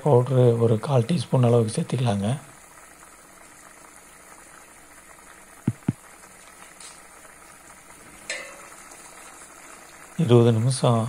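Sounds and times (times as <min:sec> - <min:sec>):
sauce bubbling and sizzling: 0:00.0 - 0:11.0
low knocks: 0:05.6 - 0:06.0
metallic lid clink: 0:08.3 - 0:08.8.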